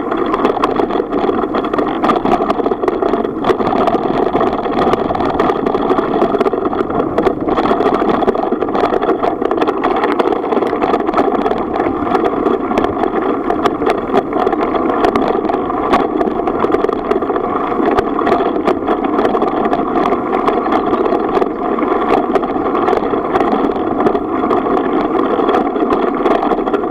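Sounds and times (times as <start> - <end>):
bicycle tyres rumbling on gravel: 0.0 - 26.9
constant hum: 0.0 - 26.9
small clicks and rattles: 0.0 - 26.9.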